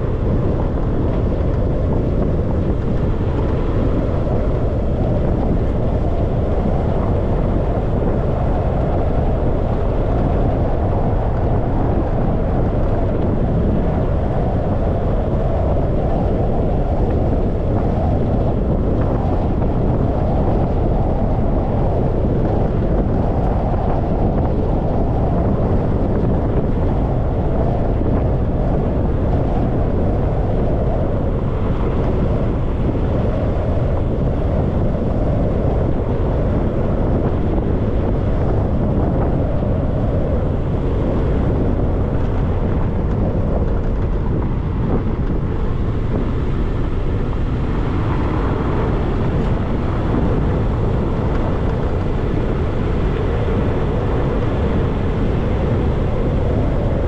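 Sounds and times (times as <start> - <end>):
road and tyre noise: 0.0 - 57.0
wind buffeting microphone: 0.0 - 57.0.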